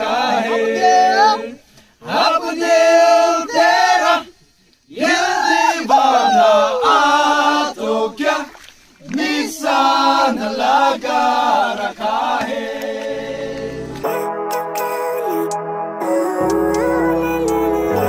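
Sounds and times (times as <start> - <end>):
men singing unaccompanied: 0.0 - 4.3, 4.9 - 8.5, 9.1 - 14.0.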